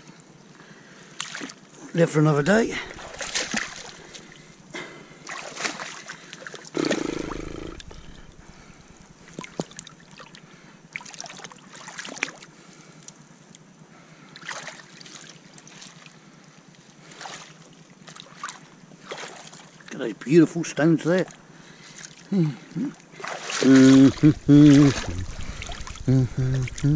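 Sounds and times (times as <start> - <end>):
water splashing in rock pool: 2.6 - 4.3, 5.3 - 6.1
deep thump: 24.1 - 26.9.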